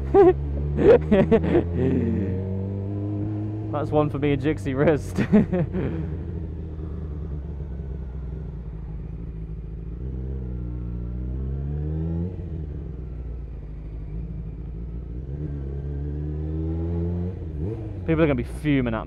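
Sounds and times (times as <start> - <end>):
motorcycle engine revving: 0.0 - 19.0.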